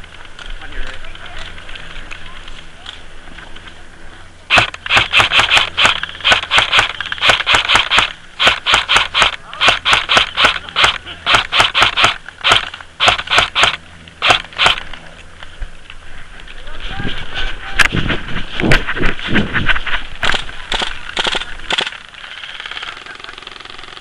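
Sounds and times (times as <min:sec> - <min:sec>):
airsoft rifle shots: 0:04.5 - 0:15.0, 0:20.2 - 0:24.0.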